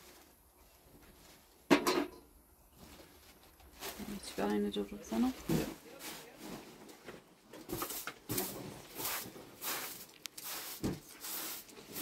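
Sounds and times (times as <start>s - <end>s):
straw broom sweeping carpet: 7.7s - 12.0s.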